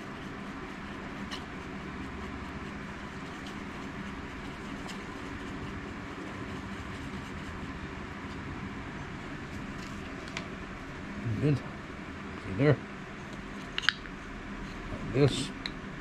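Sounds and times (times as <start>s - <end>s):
wooden stick clicking: 13.8s - 14.1s.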